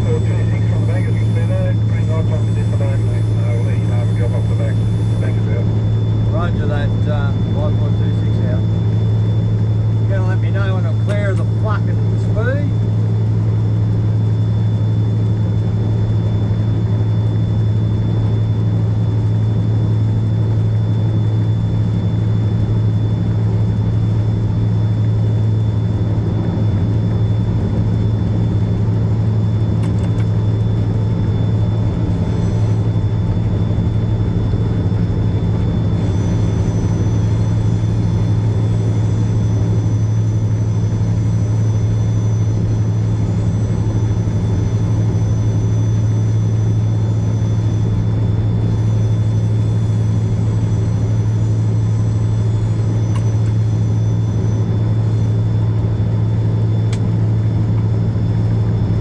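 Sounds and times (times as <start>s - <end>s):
faint steady high tone: 0.0s - 5.7s
locomotive engine droning: 0.0s - 59.0s.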